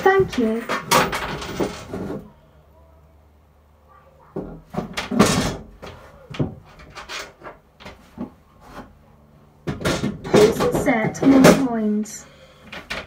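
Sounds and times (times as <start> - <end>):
faint low hum: 0.0 - 7.2.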